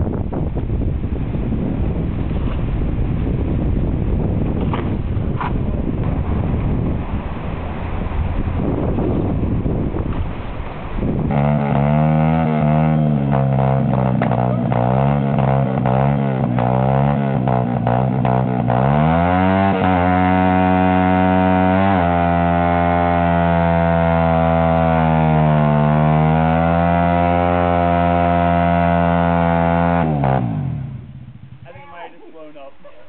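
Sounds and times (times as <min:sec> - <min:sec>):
dirt bike engine revving: 0:08.6 - 0:31.7.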